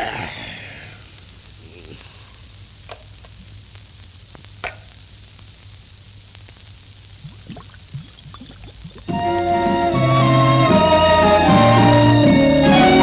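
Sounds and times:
film soundtrack hiss and hum: 0:00.0 - 0:13.0
low gulping: 0:07.1 - 0:10.6.

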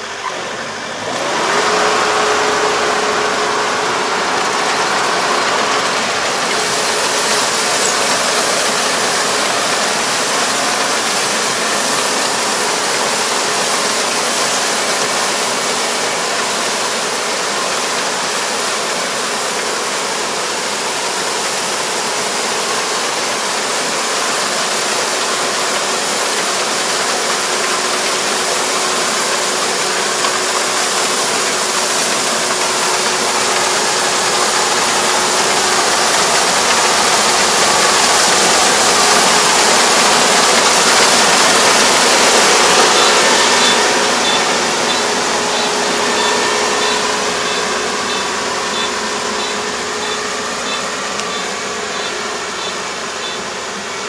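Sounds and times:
combine harvester running: 0:00.0 - 0:54.0.

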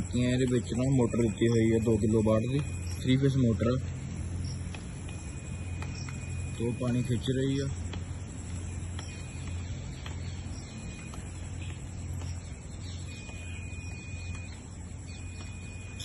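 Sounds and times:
cooling system hum: 0:00.0 - 0:16.0
faint bird chirps: 0:00.0 - 0:16.0.

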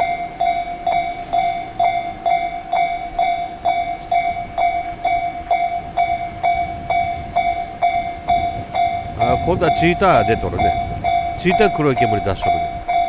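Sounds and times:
level crossing warning bell ringing: 0:00.0 - 0:13.0.

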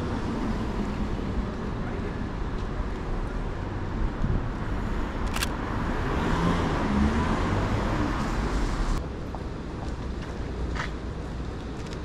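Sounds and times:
city street traffic: 0:00.0 - 0:12.0
vehicle passing: 0:04.7 - 0:09.0
camera shutter click: 0:05.2 - 0:05.6.

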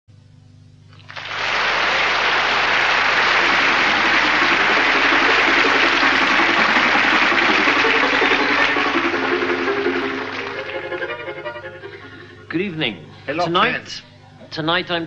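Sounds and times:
audience applauding: 0:01.0 - 0:11.5
faint music: 0:04.5 - 0:15.0.

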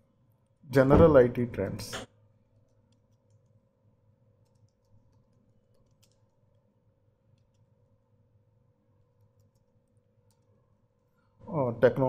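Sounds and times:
faint background hum: 0:00.0 - 0:12.0
computer keyboard typing: 0:02.6 - 0:03.5, 0:04.4 - 0:06.4, 0:09.3 - 0:10.5.

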